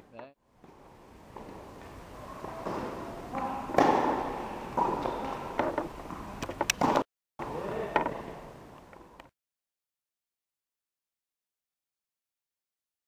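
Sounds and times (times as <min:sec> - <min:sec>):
tennis ball bouncing: 0:02.4 - 0:07.0
tennis ball hits: 0:02.6 - 0:07.0.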